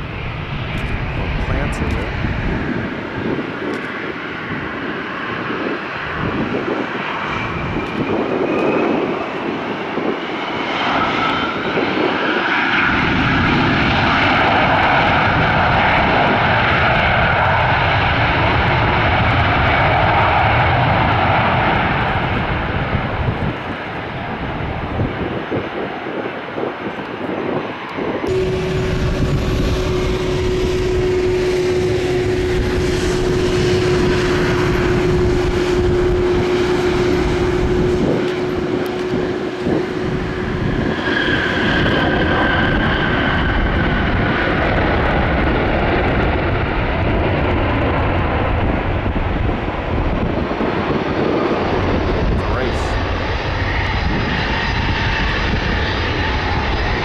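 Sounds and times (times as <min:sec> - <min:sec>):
jet airliner passing: 0:00.0 - 0:57.0
steady hum: 0:28.3 - 0:41.6.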